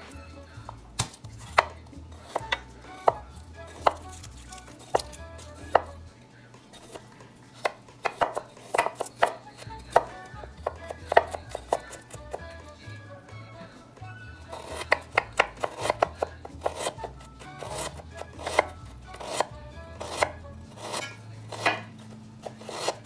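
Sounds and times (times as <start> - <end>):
knife tapping on wooden board: 7.6 - 12.4, 21.0 - 21.9.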